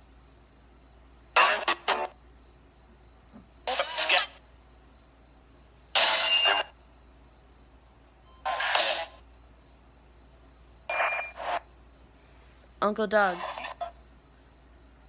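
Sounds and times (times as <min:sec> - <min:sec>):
crickets chirping: 0:00.0 - 0:15.0
radio static bursts: 0:01.4 - 0:02.1, 0:03.7 - 0:04.4, 0:06.0 - 0:06.7, 0:08.5 - 0:09.2, 0:10.9 - 0:11.6.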